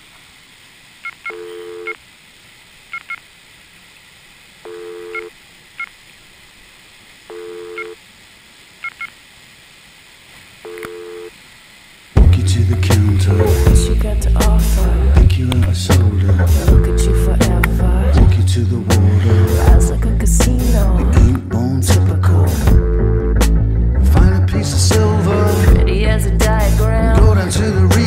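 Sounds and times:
faint hiss: 0:00.0 - 0:21.8
loud music: 0:12.2 - 0:28.0.

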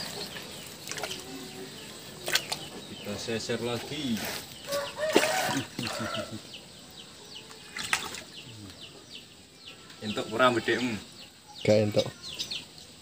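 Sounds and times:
small birds chirping: 0:00.0 - 0:13.0
fish thrashing in splashing water: 0:00.8 - 0:01.4, 0:02.2 - 0:02.7, 0:04.8 - 0:06.0, 0:07.7 - 0:08.3.

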